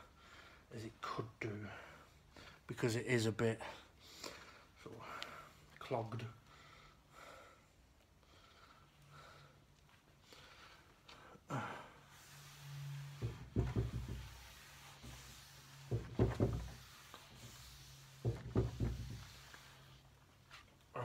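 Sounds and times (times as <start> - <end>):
knocks and thuds: 13.2 - 14.4, 15.9 - 16.8, 18.2 - 19.4.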